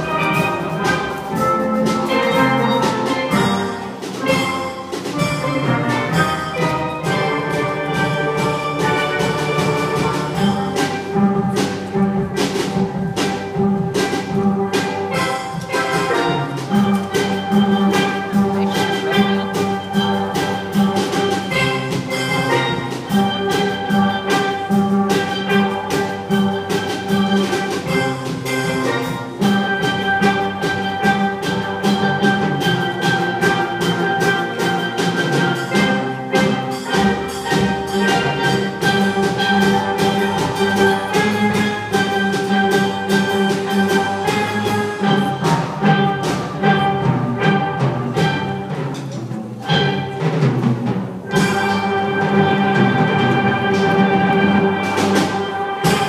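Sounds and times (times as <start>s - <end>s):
steel drum band playing: 0.0s - 56.0s.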